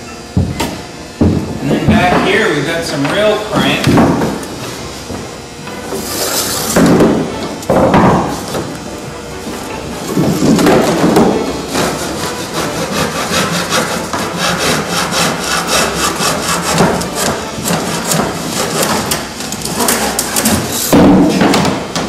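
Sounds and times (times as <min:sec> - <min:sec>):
hand saw cutting wood: 0:10.5 - 0:21.0.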